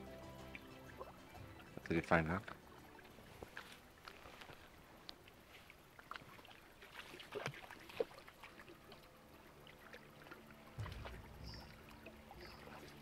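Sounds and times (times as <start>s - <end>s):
footsteps through undergrowth: 3.2s - 8.3s
low rumble: 10.8s - 12.8s.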